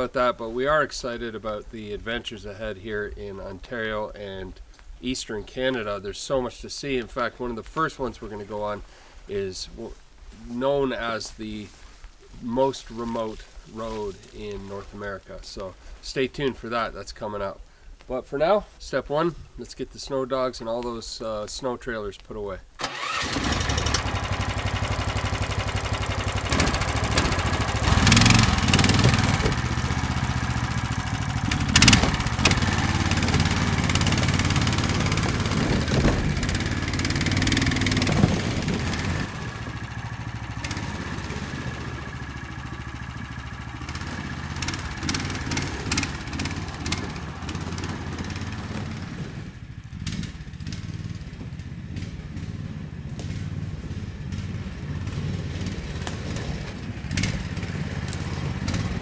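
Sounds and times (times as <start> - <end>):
small engine running: 22.8 - 59.0.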